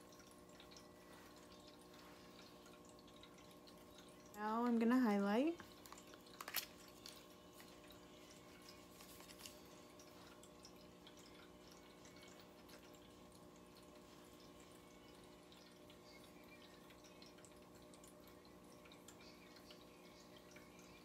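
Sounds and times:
small ticks: 0:00.0 - 0:04.8.

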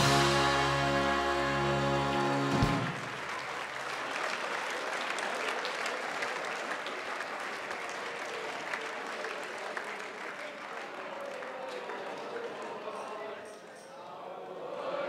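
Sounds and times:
band holding a chord: 0:00.0 - 0:03.2
audience applauding: 0:00.0 - 0:13.7.

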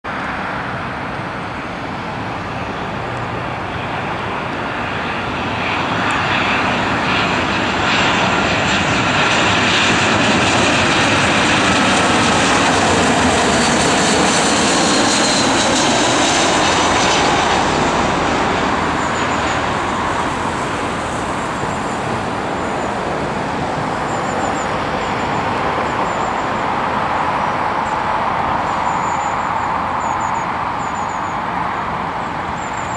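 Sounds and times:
jet airliner passing overhead: 0:00.1 - 0:32.9
jet engine whine: 0:00.1 - 0:32.9.

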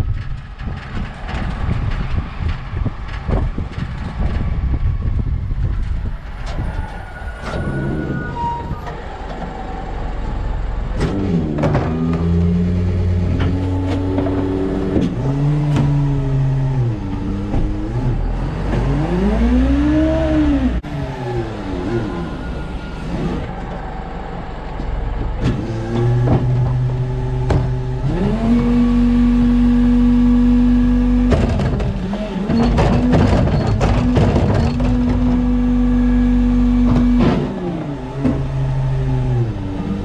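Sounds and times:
truck body knocking and rattling: 0:00.0 - 0:07.8, 0:10.3 - 0:18.9, 0:24.7 - 0:28.0, 0:31.1 - 0:35.8, 0:36.5 - 0:37.6
diesel engine pulling through gears: 0:00.0 - 0:40.0
road rumble: 0:00.0 - 0:40.0
wind: 0:00.0 - 0:40.0.

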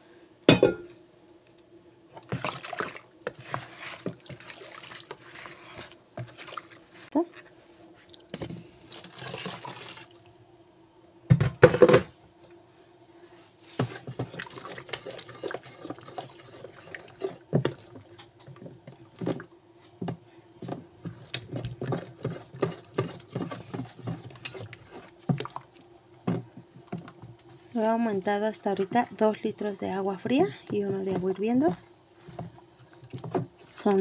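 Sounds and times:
stick stirring soapy mixture: 0:02.2 - 0:07.5, 0:13.8 - 0:25.7, 0:30.2 - 0:34.0
water pouring into a tub: 0:02.3 - 0:03.1, 0:04.1 - 0:05.6, 0:08.9 - 0:10.2.

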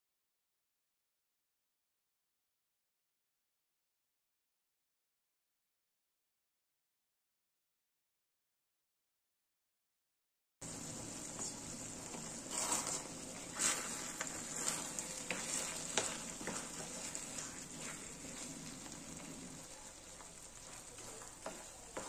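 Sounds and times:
food sizzling in a frying pan: 0:10.6 - 0:22.0
utensil scraping a pan: 0:11.4 - 0:22.0.

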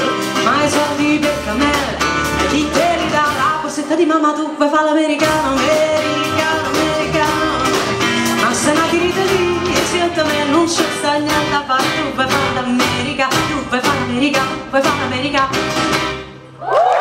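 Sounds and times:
drum kit with cymbals: 0:00.0 - 0:03.8, 0:05.2 - 0:16.2
bass guitar: 0:00.0 - 0:04.0, 0:05.2 - 0:16.6
acoustic and electric guitars: 0:00.0 - 0:16.6.

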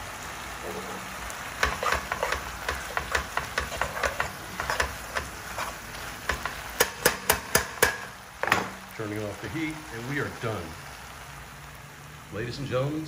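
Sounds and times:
metal tongs scraping a pan: 0:00.6 - 0:08.9.

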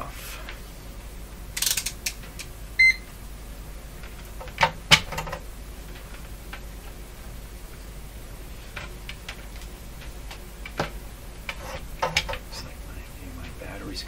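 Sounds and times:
short high beep: 0:02.8 - 0:03.0.

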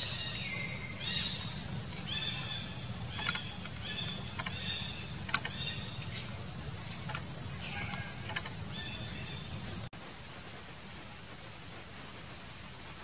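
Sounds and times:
infant monkey high-pitched calls: 0:00.0 - 0:06.2, 0:07.1 - 0:09.6
steady low hum: 0:00.0 - 0:13.0
sharp clicks: 0:03.1 - 0:06.1, 0:07.0 - 0:08.7.

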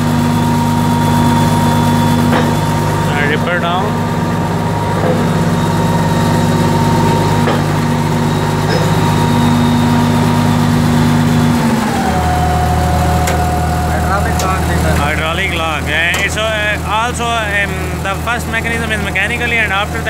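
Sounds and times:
bulldozer diesel engine running: 0:00.0 - 0:20.0.

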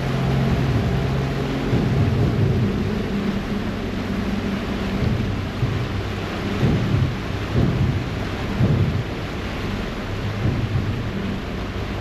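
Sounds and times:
ferry engine rumble: 0:00.0 - 0:12.0
propeller wash churning: 0:00.0 - 0:12.0
wind buffeting microphone: 0:00.0 - 0:12.0.

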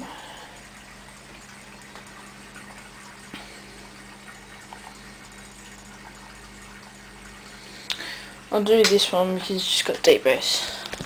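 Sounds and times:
low electrical hum with hiss: 0:00.0 - 0:11.0.

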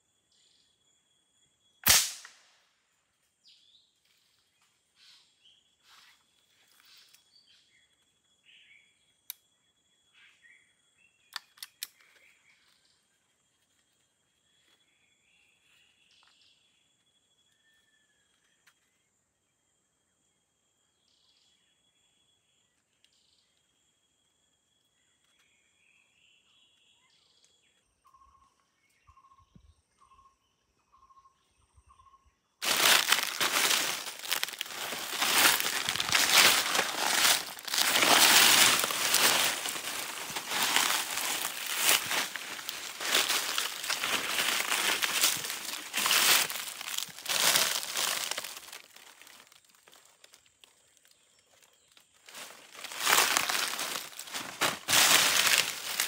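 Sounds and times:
footsteps crunching dry leaves: 0:32.6 - 0:50.1, 0:52.2 - 0:56.0.

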